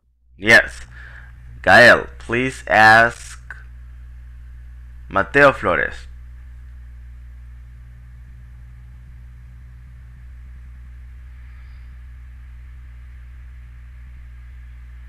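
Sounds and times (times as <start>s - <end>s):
low electrical hum: 0.0s - 15.0s
faint hiss: 10.2s - 15.0s.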